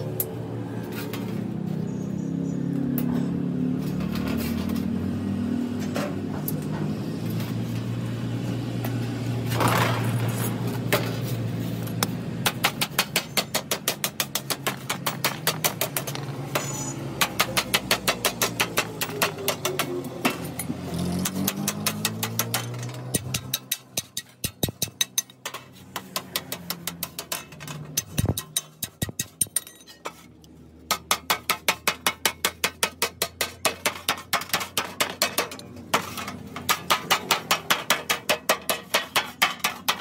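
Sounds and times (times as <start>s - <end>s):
wooden mallet beating metal sheet: 12.4s - 29.8s, 30.9s - 40.0s.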